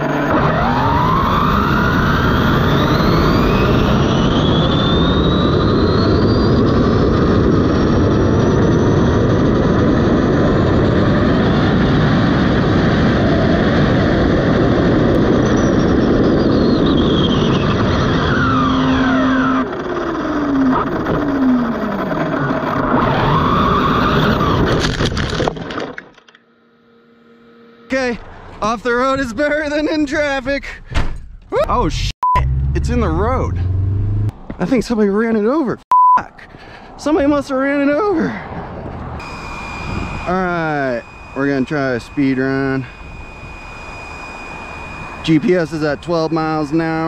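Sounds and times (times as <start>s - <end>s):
electric motor whine: 0.0s - 25.1s, 26.3s - 28.4s, 39.0s - 47.0s
wind and tyre noise: 0.0s - 26.0s, 27.9s - 47.0s.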